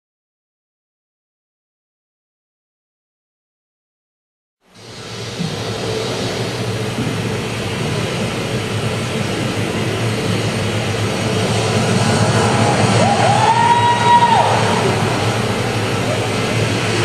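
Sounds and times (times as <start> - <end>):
low rumbling room noise: 4.6 - 17.0
high held note gliding up: 4.8 - 17.0.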